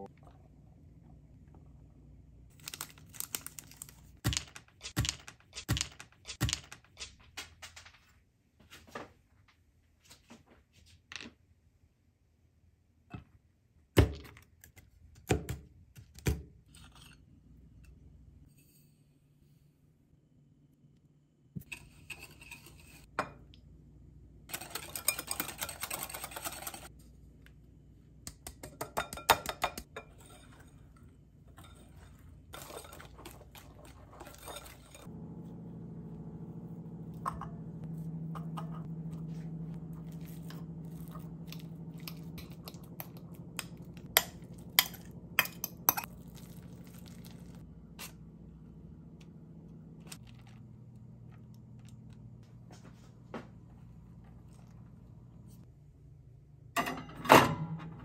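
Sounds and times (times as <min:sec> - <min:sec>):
low steady hum: 0:15.6 - 0:58.0
utensils clinking on a bowl: 0:24.5 - 0:26.9, 0:31.5 - 0:35.1, 0:40.1 - 0:47.4
whisk tapping on a bowl: 0:28.4 - 0:30.0.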